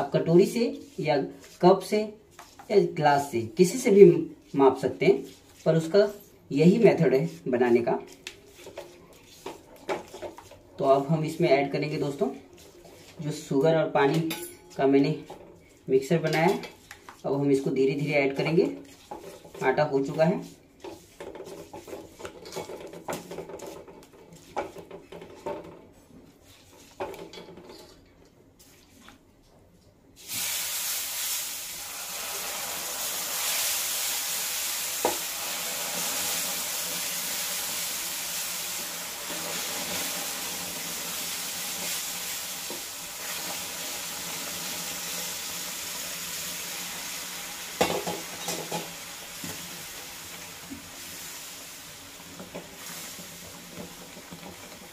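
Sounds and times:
spatula scraping and stirring in pan: 0:00.8 - 0:02.8, 0:03.7 - 0:29.2, 0:32.0 - 0:54.9
sizzling hiss: 0:30.2 - 0:54.9.

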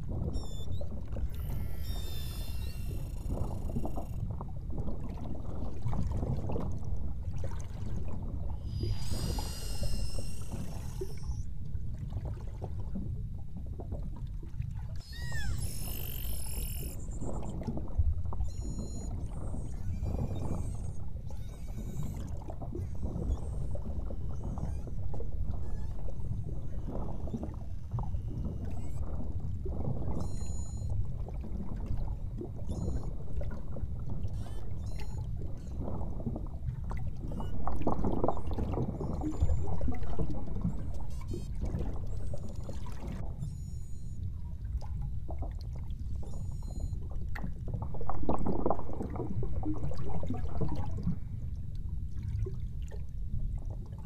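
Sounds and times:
underwater sloshing rumble: 0:00.0 - 0:54.0
whale whistles and calls: 0:00.2 - 0:04.2, 0:08.5 - 0:11.6, 0:15.0 - 0:31.4, 0:32.5 - 0:36.4, 0:37.2 - 0:44.3, 0:46.2 - 0:47.0.

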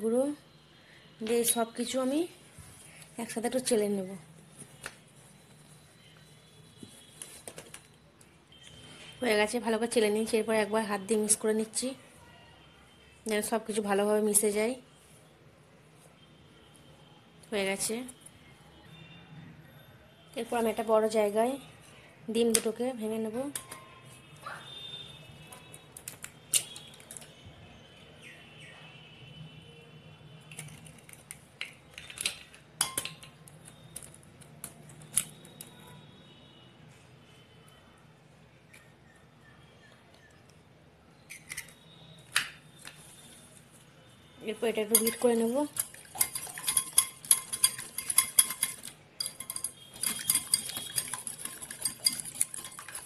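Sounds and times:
whisk clinking against glass: 0:44.9 - 0:53.0.

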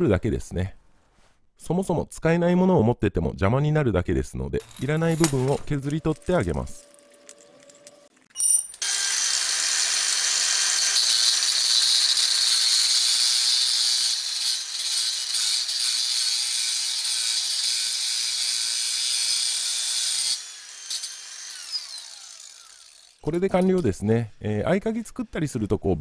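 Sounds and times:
grinder winding down: 0:04.6 - 0:23.8
angle grinder grinding metal: 0:04.6 - 0:25.3.

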